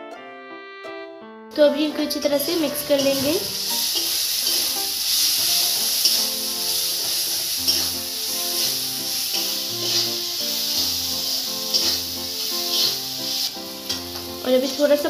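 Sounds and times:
background music: 0:00.0 - 0:15.0
masala sizzling in hot oil: 0:02.2 - 0:15.0
spatula stirring in metal pan: 0:03.0 - 0:14.4.

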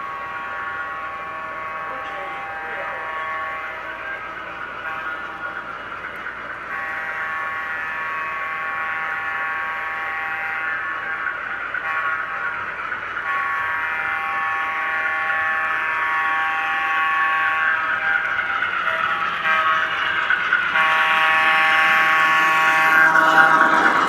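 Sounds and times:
model train air horn: 0:00.0 - 0:04.2, 0:06.7 - 0:12.5, 0:13.2 - 0:18.2, 0:18.9 - 0:19.9, 0:20.7 - 0:23.9.

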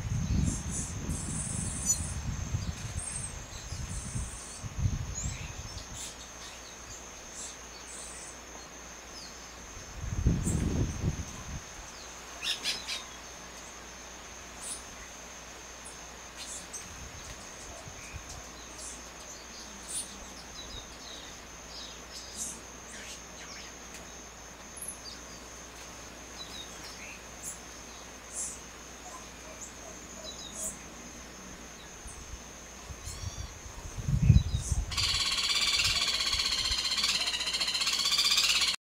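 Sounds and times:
high-pitched insect drone: 0:32.9 - 0:38.8
bird chirps: 0:34.4 - 0:38.8.

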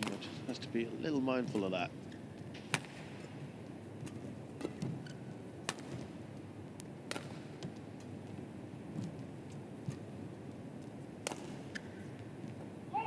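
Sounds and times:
rackets striking shuttlecock: 0:05.6 - 0:06.2, 0:06.8 - 0:08.2, 0:11.2 - 0:12.2.

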